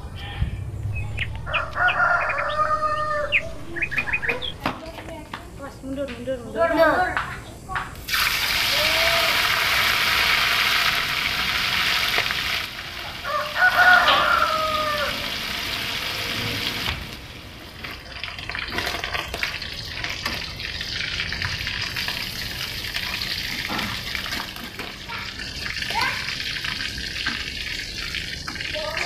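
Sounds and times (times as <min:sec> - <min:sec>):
rooster crowing: 0:01.2 - 0:04.5, 0:13.0 - 0:15.6
fish sizzling in hot oil: 0:08.0 - 0:29.0.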